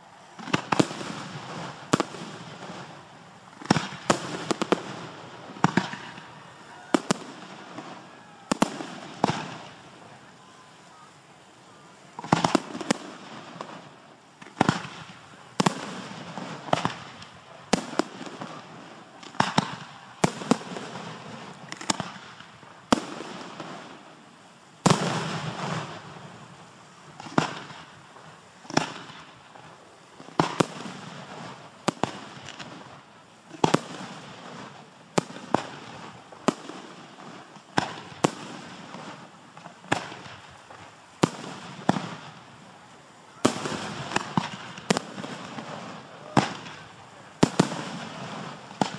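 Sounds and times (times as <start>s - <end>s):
fireworks bangs: 0.0s - 11.1s, 11.7s - 48.9s.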